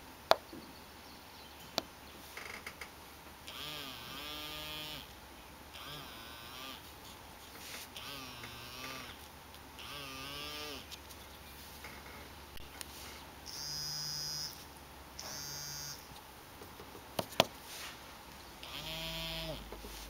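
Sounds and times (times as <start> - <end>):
vibration motor buzzing: 3.5 - 5.1, 5.7 - 6.9, 7.9 - 9.2, 9.8 - 10.9, 13.5 - 14.6, 15.2 - 16.1, 18.6 - 19.7.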